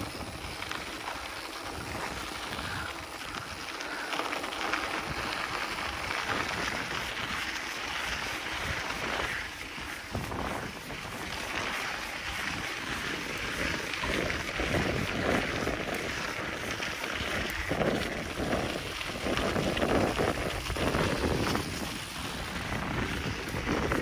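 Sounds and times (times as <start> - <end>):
bike tyre noise: 0.0 - 24.0
wind on microphone: 4.9 - 24.0.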